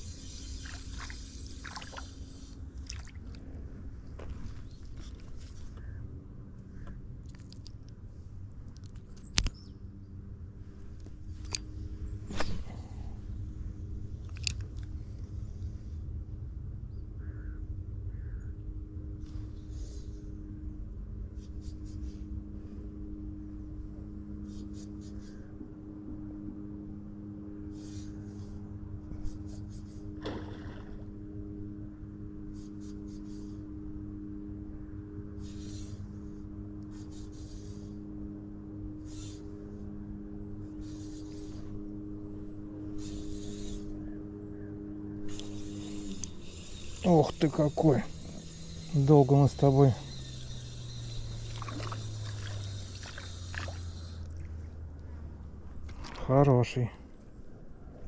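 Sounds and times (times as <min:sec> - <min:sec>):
steady low hum: 0:00.0 - 0:58.0
steady low rumble: 0:00.0 - 0:58.0
spinning reel whirring: 0:43.0 - 0:43.9, 0:45.3 - 0:54.2.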